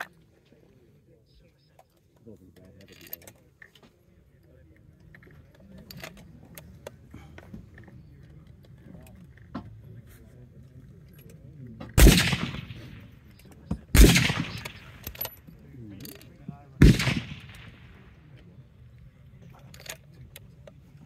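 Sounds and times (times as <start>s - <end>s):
rifle shots with echo: 11.9s - 15.4s, 16.8s - 18.3s.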